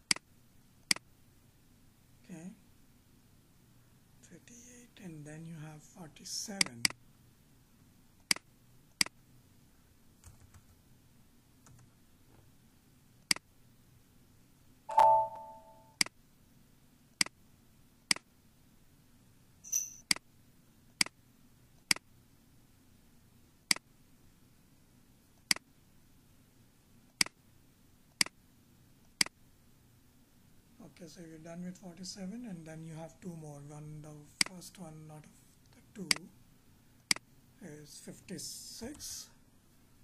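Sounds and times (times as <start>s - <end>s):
computer mouse clicking: 11.6s - 11.9s, 27.1s - 27.4s
faint high-pitched blip: 14.9s - 15.9s
tonal blip: 14.9s - 16.0s.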